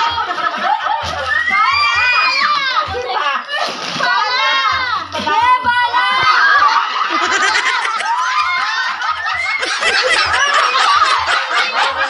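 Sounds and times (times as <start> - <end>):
group of people laughing: 0.0 - 1.7, 5.1 - 12.0.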